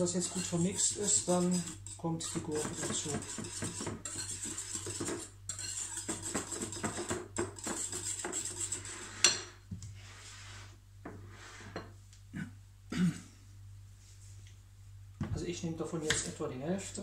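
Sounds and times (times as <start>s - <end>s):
whisk clinking in glass bowl: 0.2s - 9.4s.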